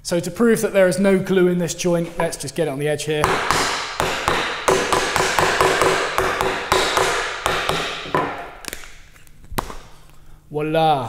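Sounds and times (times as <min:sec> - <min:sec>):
hammer knocking on wood: 0:03.2 - 0:08.5.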